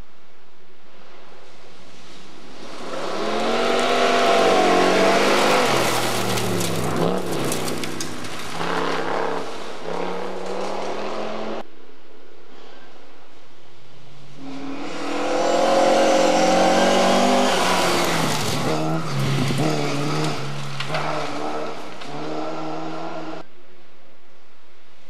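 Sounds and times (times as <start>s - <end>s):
engine crackles: 1.4s - 11.4s, 15.7s - 23.4s
rally car engine revving: 1.4s - 11.7s, 14.2s - 23.5s.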